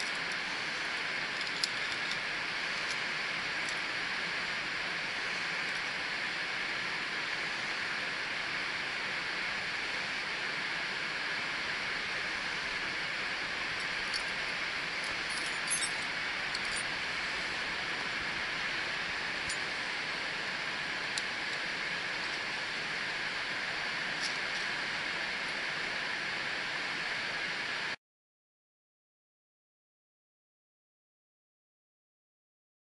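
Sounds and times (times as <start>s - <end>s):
steady rushing hiss: 0.0s - 28.0s
metallic clinks of carabiners: 15.0s - 16.9s.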